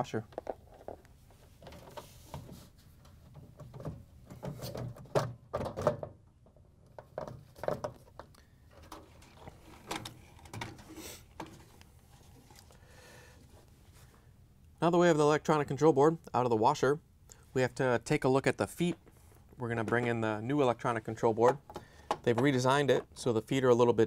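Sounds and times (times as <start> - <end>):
plastic knocking and scraping on cabinet: 3.2 - 11.7.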